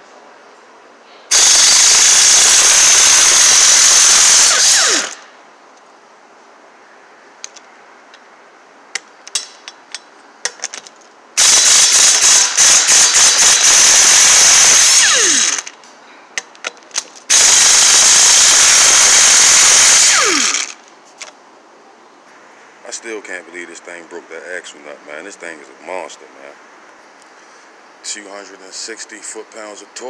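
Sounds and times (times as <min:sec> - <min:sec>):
impact wrench spinning lug nuts: 0:01.3 - 0:05.2, 0:11.4 - 0:15.8, 0:16.4 - 0:20.8.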